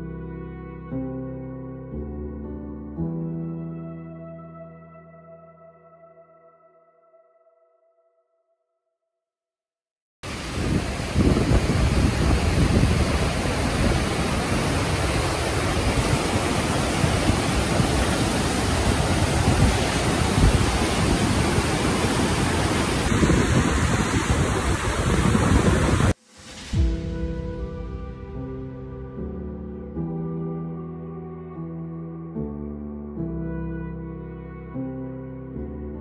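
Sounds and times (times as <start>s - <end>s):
whitewater rapids roaring: 10.3s - 26.2s.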